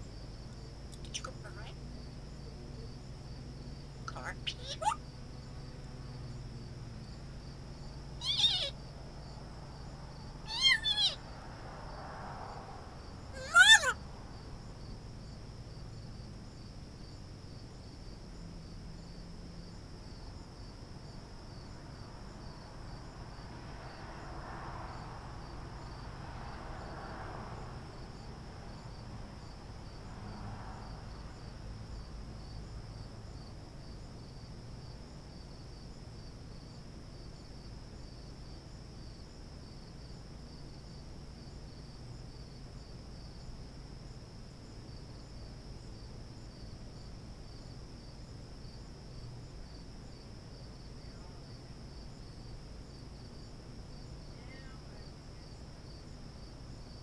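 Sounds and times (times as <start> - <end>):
high insect trill: 0.0 - 57.0
parrot calls: 4.1 - 5.0, 8.2 - 8.8, 10.4 - 11.2, 13.3 - 14.0.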